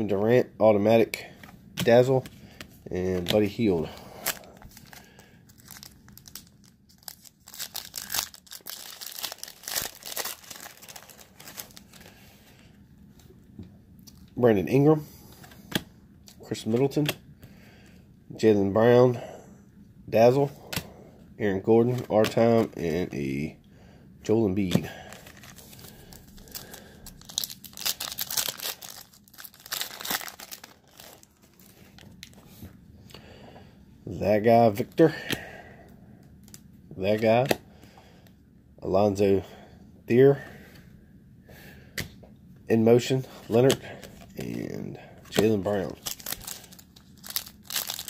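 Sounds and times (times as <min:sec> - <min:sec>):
foil wrapper crinkling: 0:03.1 - 0:12.2, 0:25.1 - 0:32.4, 0:45.3 - 0:48.0.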